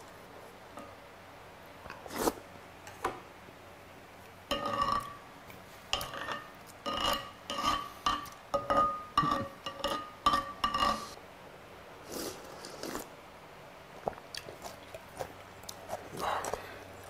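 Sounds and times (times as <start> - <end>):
wooden spoon scraping ceramic plate: 4.5 - 5.1, 6.0 - 11.2
eating sounds: 14.0 - 17.0.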